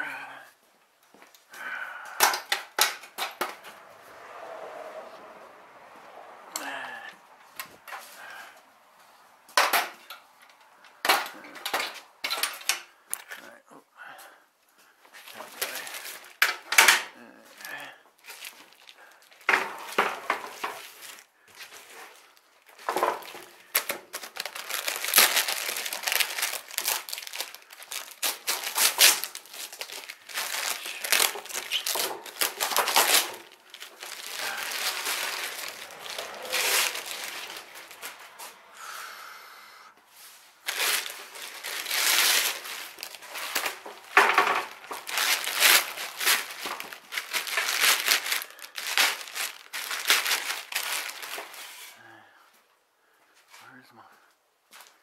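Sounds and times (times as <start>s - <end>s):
plastic wrapping crinkling and tearing: 15.1s - 38.5s, 40.6s - 51.8s.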